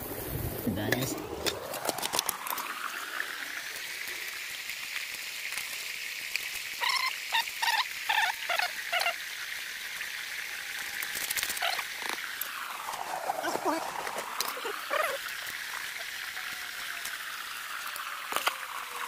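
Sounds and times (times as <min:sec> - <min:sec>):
creek water running over rocks: 0:00.0 - 0:19.0.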